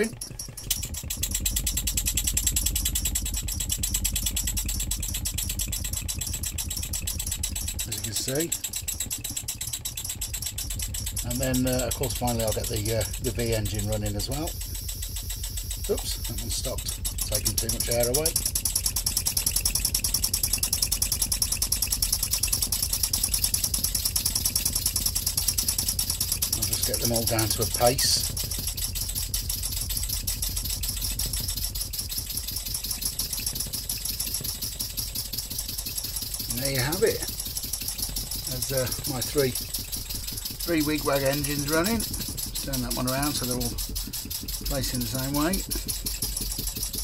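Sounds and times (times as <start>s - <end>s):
model air engines chuffing: 0.0s - 47.0s
steady low hum: 0.0s - 47.0s.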